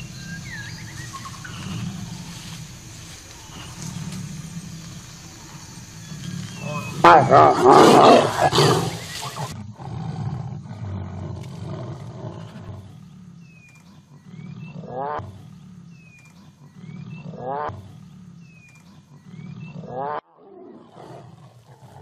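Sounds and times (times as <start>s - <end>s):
bird whistled call: 0.0s - 2.0s, 6.0s - 7.0s
tigers growling: 0.0s - 22.0s.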